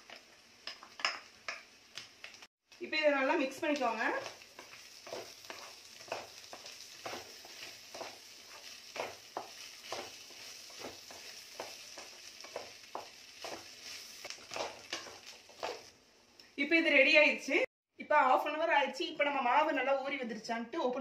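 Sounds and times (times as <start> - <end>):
light sizzle: 0.0 - 17.7
spatula scraping pan: 4.1 - 15.9.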